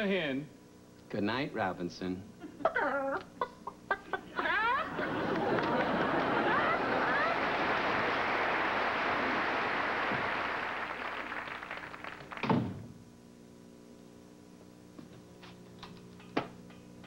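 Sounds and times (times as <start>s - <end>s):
steady outdoor hiss: 0.0s - 13.6s
low room hum: 0.0s - 17.0s
door shutting with a thud: 12.4s - 13.0s.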